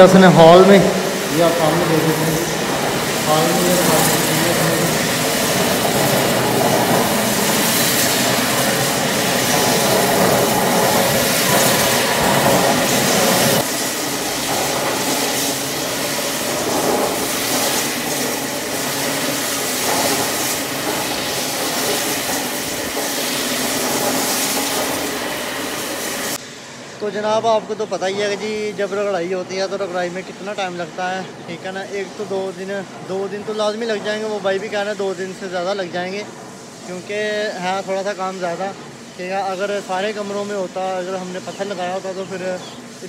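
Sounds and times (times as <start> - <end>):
floor grinding machine grinding: 0.0 - 26.4
water hiss: 0.0 - 43.0.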